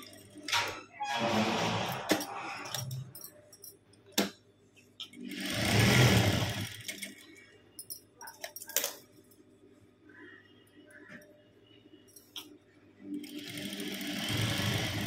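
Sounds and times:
sewing machine stitching: 5.2 - 7.1, 13.2 - 15.0.

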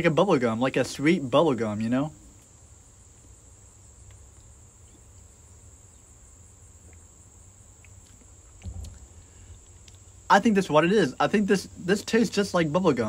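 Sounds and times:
faint ticks: 4.0 - 4.6, 6.8 - 7.1, 7.8 - 10.1
soft low knock: 8.6 - 9.2
low rumble: 8.6 - 9.5.

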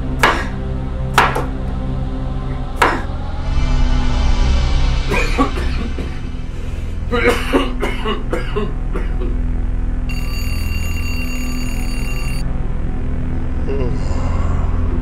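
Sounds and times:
low drone: 0.0 - 15.0
high electronic ringing tone: 10.1 - 12.5
voice-like sounds: 13.6 - 15.0.

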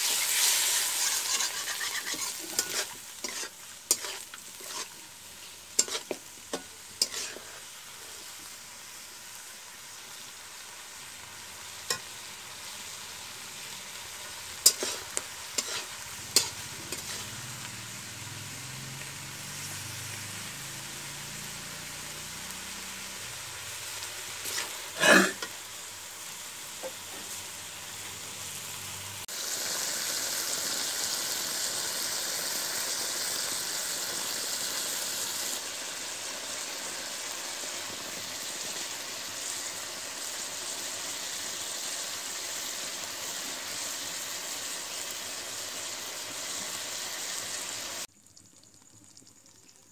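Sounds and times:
metal spatula scraping a wok: 0.0 - 8.4, 14.0 - 18.0, 24.3 - 25.6
curry sizzling in a wok: 0.0 - 49.9.

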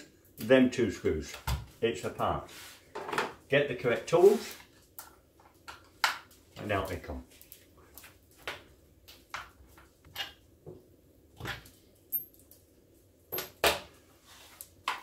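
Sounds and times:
tools handled and set down: 2.9 - 3.4, 13.3 - 13.9.

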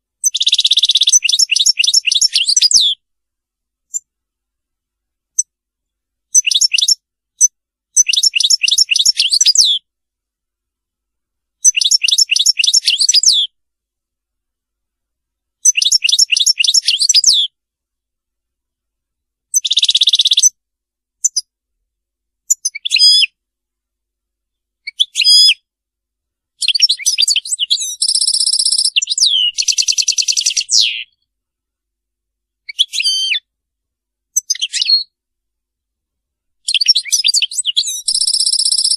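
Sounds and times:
finch twittering song: 0.2 - 3.0, 6.3 - 9.8, 11.6 - 13.5, 15.6 - 17.6, 19.5 - 20.6, 22.5 - 23.4, 26.6 - 31.2, 32.7 - 33.5, 34.4 - 35.2, 36.6 - 38.9.

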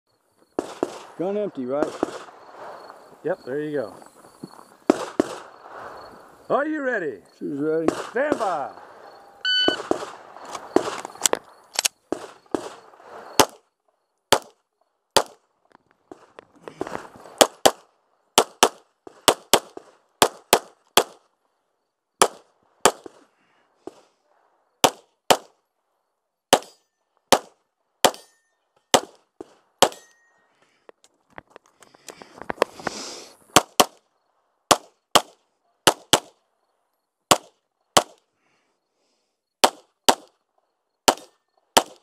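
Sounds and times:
pistol shots: 0.6 - 1.2, 1.8 - 2.7, 4.9 - 5.5, 7.8 - 9.0, 9.6 - 11.0, 11.8 - 12.8, 13.4 - 13.6, 14.3 - 14.6, 15.2 - 15.4, 17.4 - 21.2, 22.2 - 23.2, 24.8 - 25.6, 26.5 - 29.2, 29.8 - 30.1, 33.5 - 34.0, 34.7 - 36.4, 37.3 - 38.2, 39.6 - 40.3, 41.0 - 42.0.

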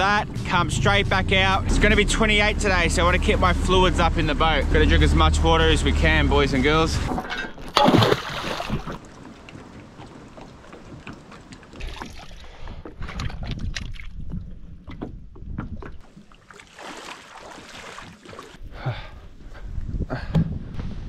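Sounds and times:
water sloshing: 7.0 - 18.7
anchor splashing into water: 7.4 - 14.2, 16.0 - 18.6.

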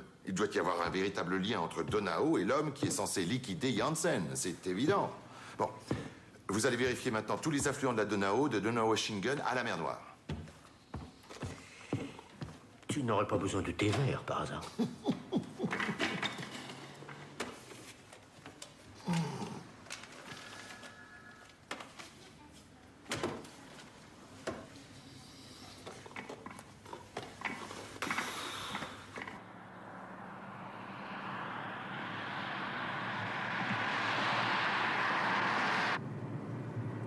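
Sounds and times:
approaching vehicle rushing: 28.8 - 37.0.

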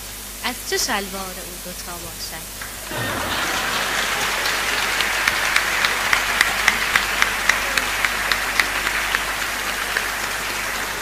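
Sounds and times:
rhythmic clapping in unison: 2.6 - 11.0
audience applauding: 2.7 - 11.0.

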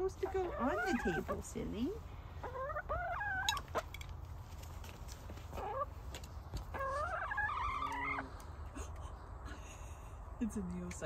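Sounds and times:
hens calling: 0.0 - 4.1, 5.3 - 8.7.

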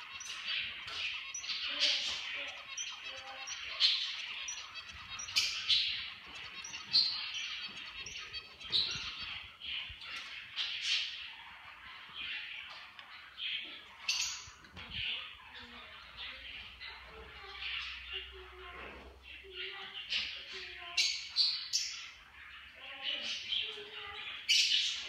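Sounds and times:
small birds chirping: 0.0 - 25.0.

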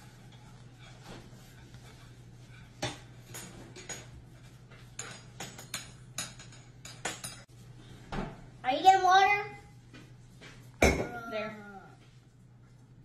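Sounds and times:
dishes and cutlery clinking: 0.0 - 7.5, 10.4 - 11.4.

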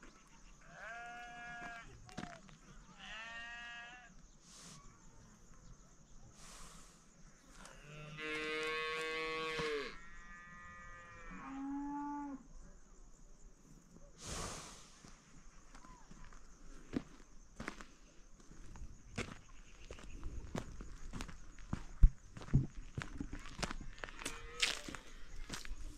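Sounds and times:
farm animals mooing: 0.6 - 2.0, 2.9 - 4.2, 7.5 - 12.5, 24.0 - 25.6.

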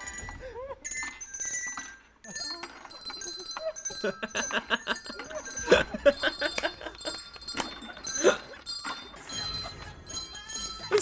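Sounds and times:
handbells playing a tune: 0.0 - 11.0
people laughing: 2.3 - 8.7.

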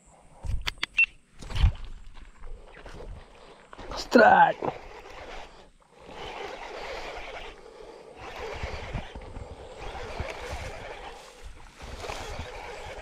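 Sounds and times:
wind buffeting microphone: 4.6 - 13.0.

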